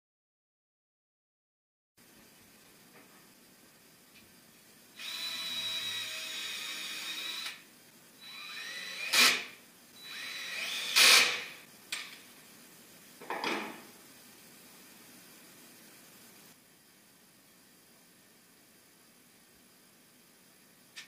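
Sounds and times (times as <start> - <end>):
cordless drill motor whine: 5.0 - 7.6, 8.2 - 9.4, 10.0 - 11.5.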